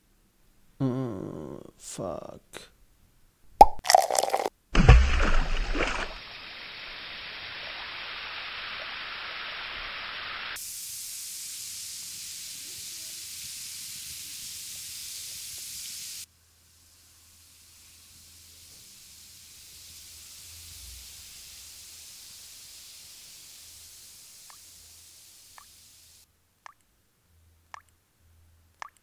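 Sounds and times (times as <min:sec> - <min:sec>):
water poured into glass: 0:03.6 - 0:06.2
tablet fizzing in water: 0:03.6 - 0:16.2.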